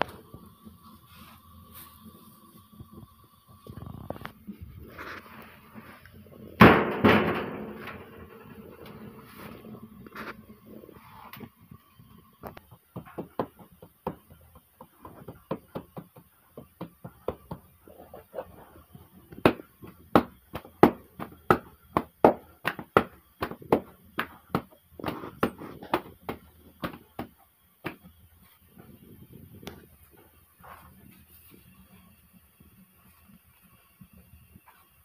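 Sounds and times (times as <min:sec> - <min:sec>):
dough being slapped by hand: 0:12.6 - 0:17.7, 0:19.3 - 0:28.1.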